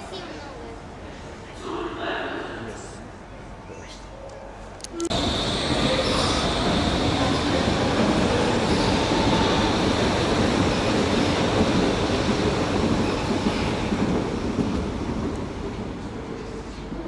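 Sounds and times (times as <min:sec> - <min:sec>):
train wheels rumbling on rails: 0:05.1 - 0:17.0.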